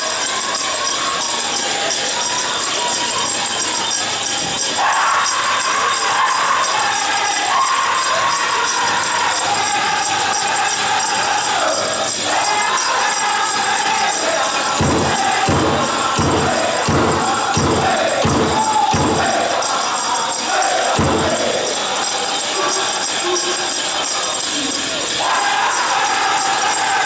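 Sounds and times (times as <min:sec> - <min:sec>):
group singing in high voices: 0:00.0 - 0:27.0
leg bells jingling: 0:00.0 - 0:27.0
big drum beating: 0:14.6 - 0:19.8, 0:20.8 - 0:21.9
heavy drum strokes: 0:14.6 - 0:20.0, 0:20.7 - 0:21.9.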